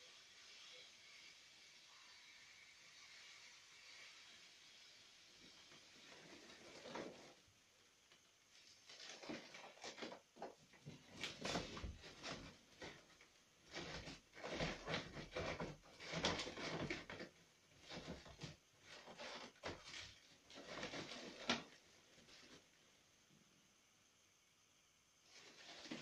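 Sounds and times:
foil balloons crinkling: 8.5s - 22.6s.

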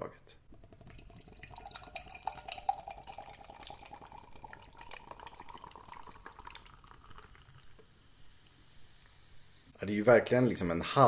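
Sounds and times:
beer pouring into a glass: 0.5s - 8.0s.

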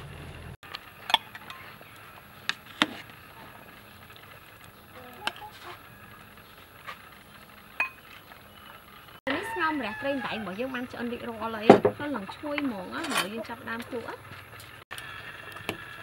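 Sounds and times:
soup bubbling: 0.6s - 12.9s.

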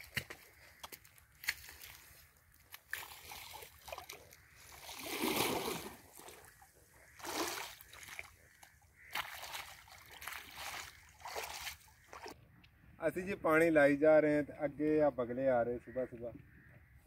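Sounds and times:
hoe digging wet mud: 0.0s - 12.4s
water splashing in ditch: 0.0s - 12.4s.

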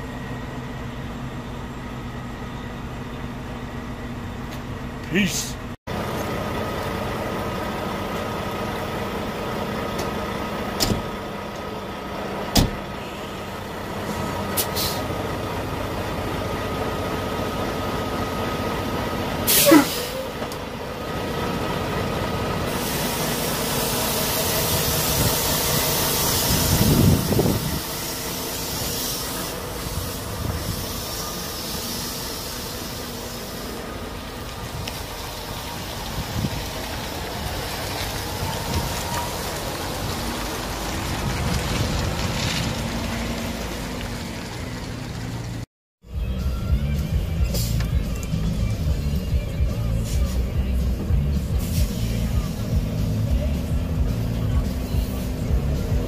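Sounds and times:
truck engine idling: 0.0s - 56.0s
cab door shutting: 12.5s - 12.8s
air brake hiss: 14.6s - 15.1s, 19.5s - 20.4s, 22.7s - 33.8s, 47.5s - 47.9s, 50.0s - 50.5s, 51.5s - 52.3s.

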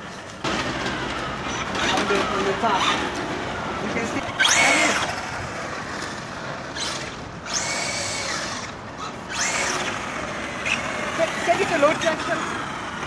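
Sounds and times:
electric motor whining: 3.9s - 13.0s.

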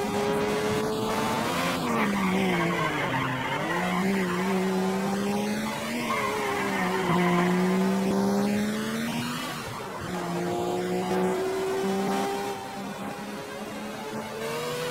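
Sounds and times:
race car engine drone: 0.0s - 14.9s
tyre squeal: 1.8s - 4.7s, 5.3s - 7.8s.

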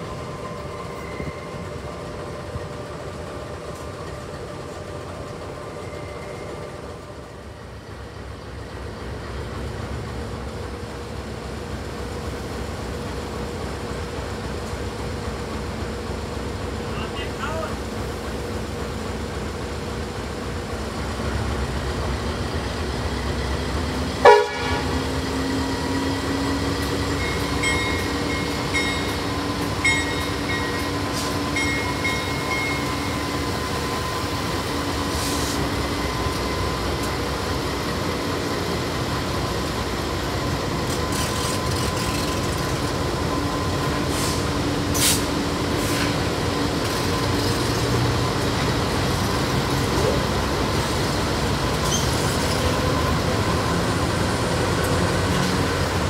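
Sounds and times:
diesel locomotives running: 0.0s - 56.0s
locomotive horn toot: 24.2s - 25.1s.

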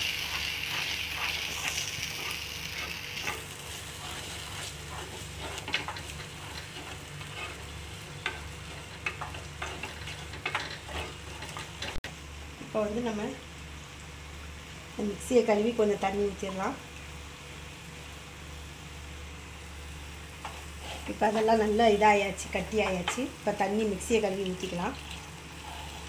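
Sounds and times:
wooden spatula scraping pot: 0.0s - 12.0s, 20.4s - 21.6s
spice paste sizzling in oil: 0.0s - 26.0s.

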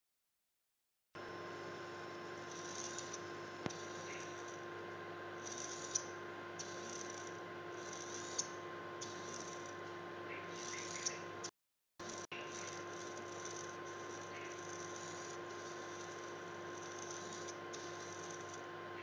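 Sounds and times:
electrical hum: 1.2s - 19.0s
servo motor whirring: 2.5s - 4.6s, 5.4s - 9.8s, 10.5s - 11.2s, 12.1s - 18.6s.

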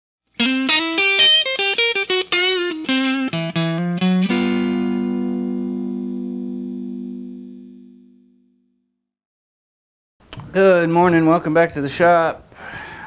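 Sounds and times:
plucked guitar riff: 0.4s - 8.7s.

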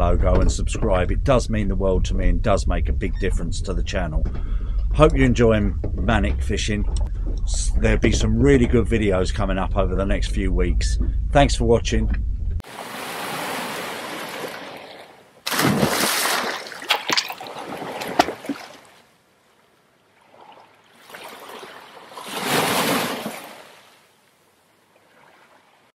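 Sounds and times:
rushing water swell: 12.6s - 19.1s, 20.1s - 25.9s
water splash: 12.6s - 19.1s, 20.2s - 24.1s
water splattering and dripping: 15.5s - 19.0s.

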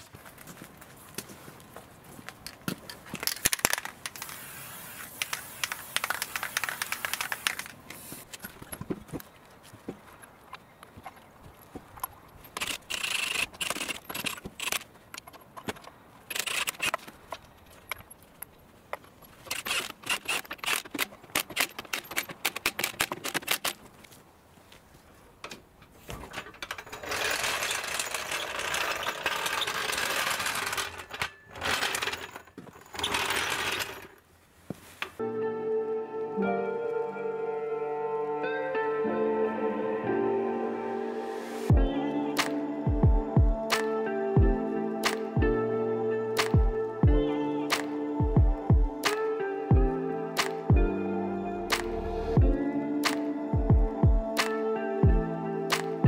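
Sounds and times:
metal parts clinking and scraping: 2.4s - 4.5s, 12.5s - 18.2s, 19.0s - 23.8s, 26.2s - 34.2s
aerosol spray can hissing: 4.2s - 8.3s.

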